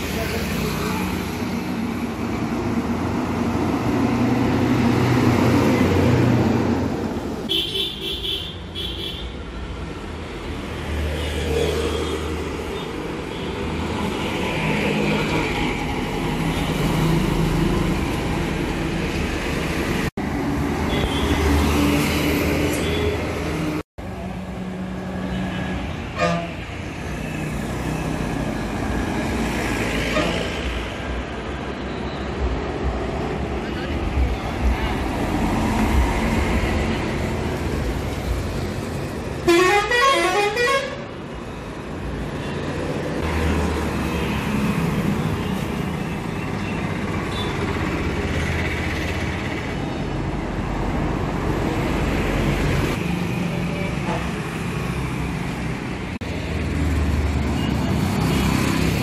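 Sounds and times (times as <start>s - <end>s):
traffic engines passing: 0.0s - 59.0s
vehicle horn blasts: 39.5s - 41.0s.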